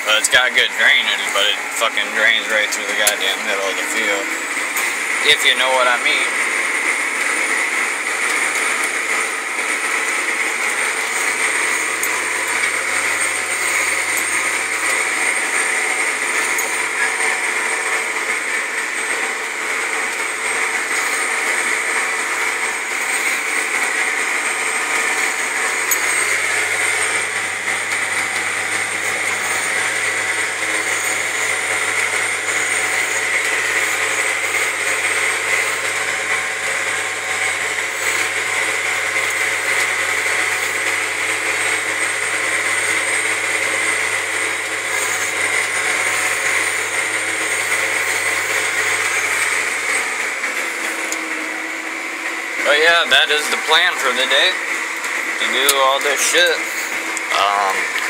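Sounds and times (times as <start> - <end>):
high whine: 0.0 - 58.0
tractor engine under load: 0.0 - 58.0.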